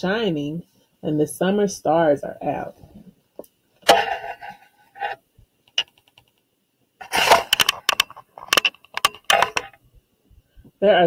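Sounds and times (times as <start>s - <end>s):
book page turning: 7.0s - 9.7s
paper rustling: 7.0s - 9.7s.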